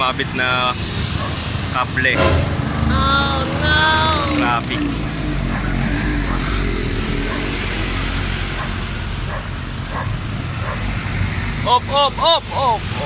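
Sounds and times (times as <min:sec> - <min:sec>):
slow road traffic rumble: 0:00.0 - 0:13.0.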